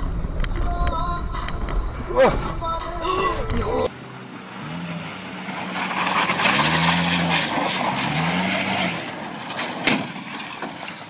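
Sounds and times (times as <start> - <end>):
tyre and road noise hiss: 3.9 - 11.0.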